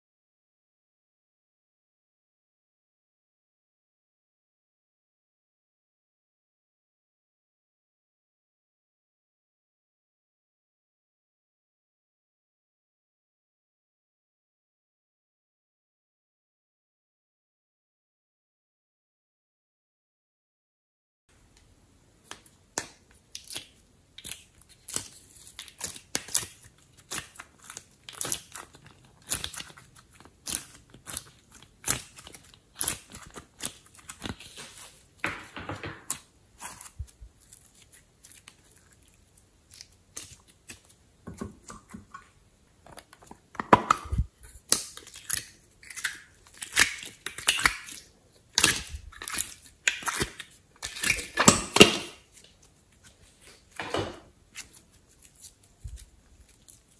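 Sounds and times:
sticky clicks and squishes of clay: 22.3 - 34.9.

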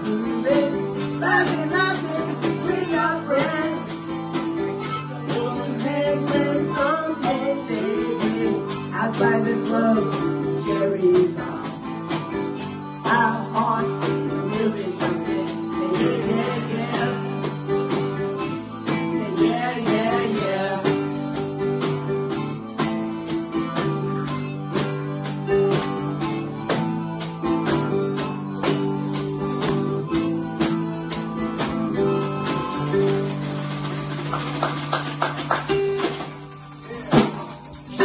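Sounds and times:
woman singing: 0.0 - 12.0, 13.0 - 17.6, 18.9 - 21.2, 36.9 - 38.0
strummed acoustic guitar: 0.0 - 38.0.

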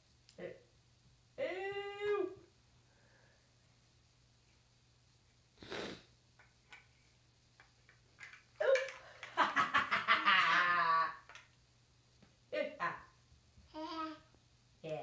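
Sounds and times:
breathy puff: 5.6 - 6.1
plastic building blocks clicking: 7.9 - 9.4.

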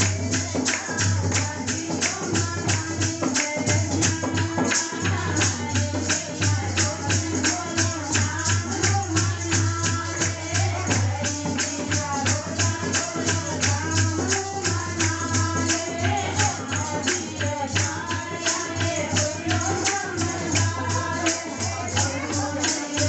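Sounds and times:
clapping: 0.0 - 2.2
jingling percussion: 0.0 - 23.0
woman singing devotional song: 0.0 - 23.0.

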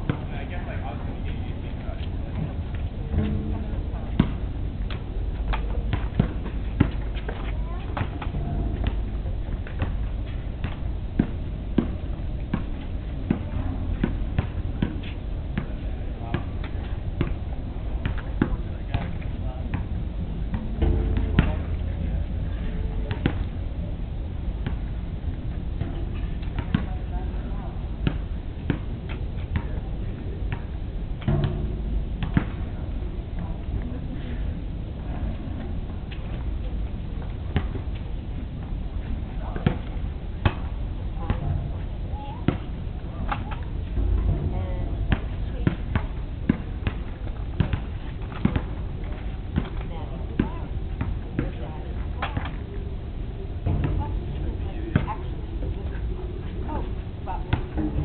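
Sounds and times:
low rumble: 0.0 - 18.0, 30.9 - 39.3, 40.1 - 47.5.

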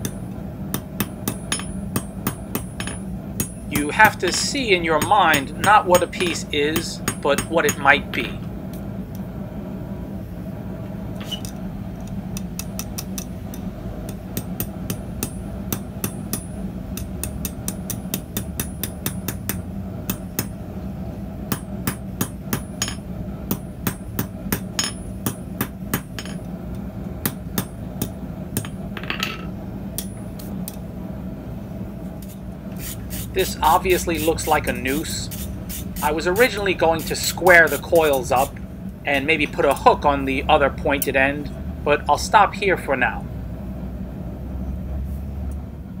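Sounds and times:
hammer ringing on anvil: 0.0 - 6.4, 21.5 - 23.0
steady low hum: 0.0 - 46.0.

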